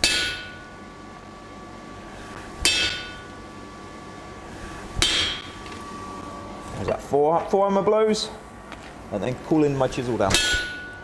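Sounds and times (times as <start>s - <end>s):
hammer striking chisel on steel: 0.0s - 0.7s, 2.6s - 3.3s, 5.0s - 5.5s, 10.3s - 11.0s
metallic ringing: 0.0s - 0.9s, 2.6s - 3.4s, 5.0s - 5.6s, 10.3s - 11.0s.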